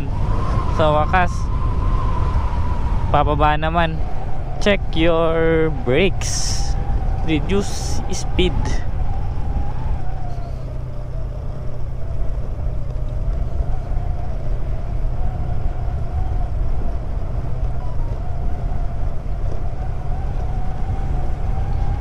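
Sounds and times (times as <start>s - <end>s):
wind rush on microphone: 0.0s - 22.0s
scooter engine humming: 4.0s - 22.0s.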